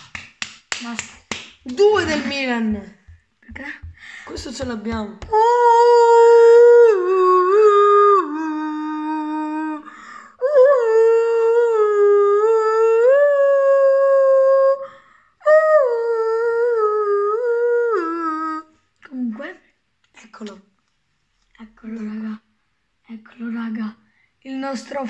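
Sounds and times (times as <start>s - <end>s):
boy humming into cupped hands: 5.2s - 14.8s, 15.4s - 18.7s.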